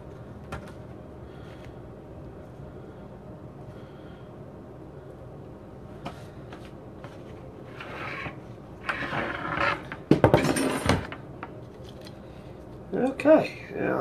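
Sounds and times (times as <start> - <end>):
plate scraping across counter: 7.7 - 10.0.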